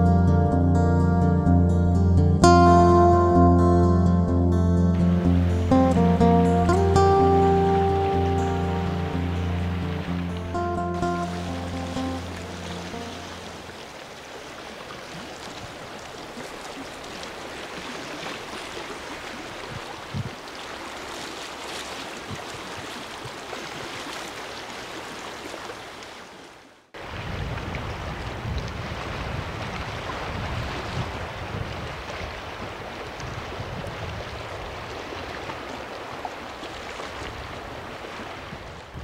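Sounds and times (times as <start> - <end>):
breeze: 4.8 - 14.2
waves lapping rocky shore: 5.0 - 39.0
wind buffeting microphone: 19.6 - 20.4, 27.0 - 35.7, 37.2 - 39.0.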